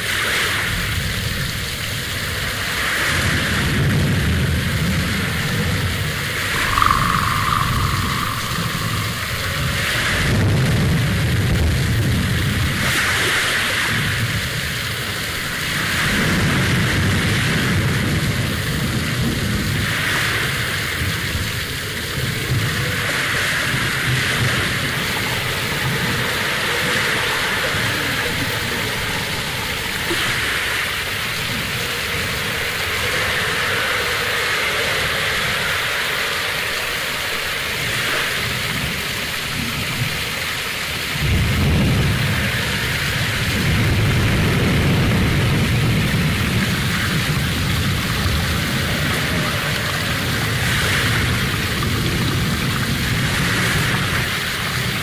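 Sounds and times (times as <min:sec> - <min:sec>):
low rumble: 0:06.5 - 0:11.1.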